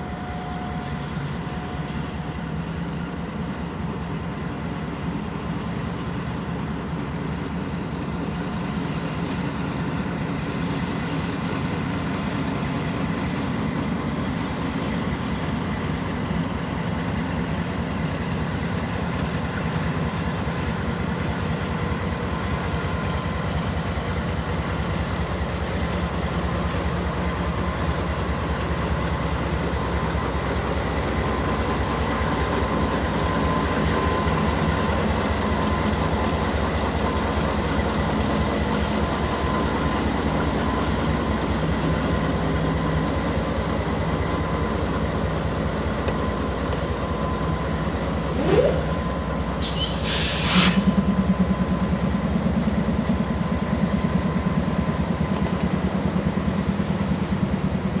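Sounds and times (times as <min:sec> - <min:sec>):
freight train wheels on rails: 0:00.0 - 0:58.0
short rising tone: 0:48.3 - 0:50.1
burst of hiss: 0:49.6 - 0:51.0.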